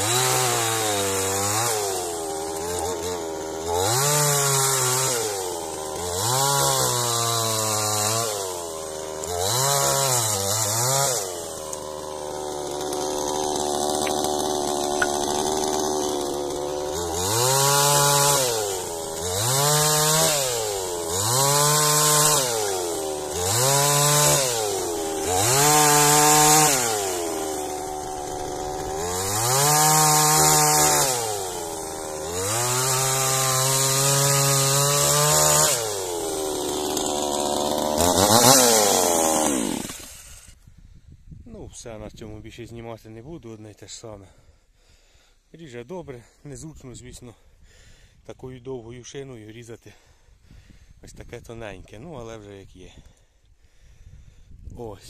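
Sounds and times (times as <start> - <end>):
chainsaw revving: 0.0 - 40.6
chain rasping through wood: 11.1 - 34.0.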